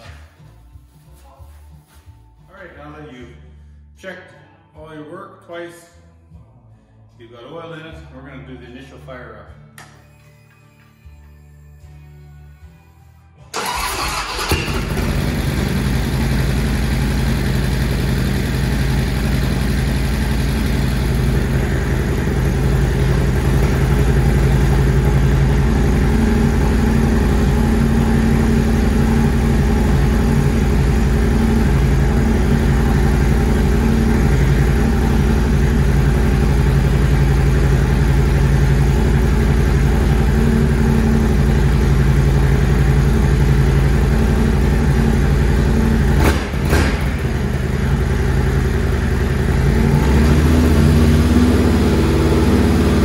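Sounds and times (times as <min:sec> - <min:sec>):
motorcycle engine starting and idling: 0:13.5 - 0:53.0.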